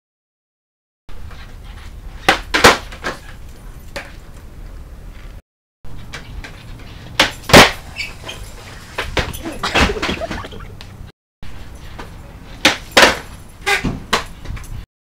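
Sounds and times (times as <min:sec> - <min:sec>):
skateboard tail snapping on concrete: 0:02.2 - 0:03.2, 0:07.2 - 0:07.8, 0:12.6 - 0:14.3
skateboard landing clack: 0:02.2 - 0:03.3, 0:07.2 - 0:07.8, 0:12.6 - 0:14.3.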